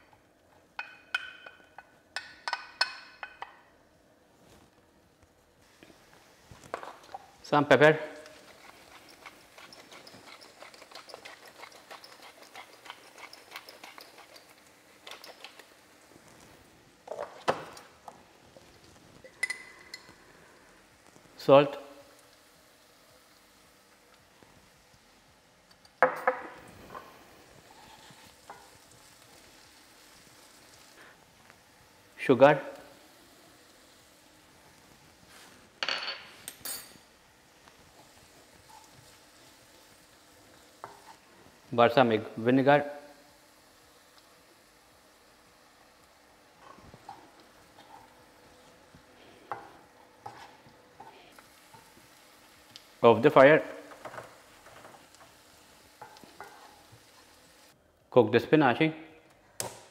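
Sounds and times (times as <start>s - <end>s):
onions sizzling: 5.6s - 57.8s
kitchenware clinking: 19.2s - 20.1s, 35.8s - 37.1s.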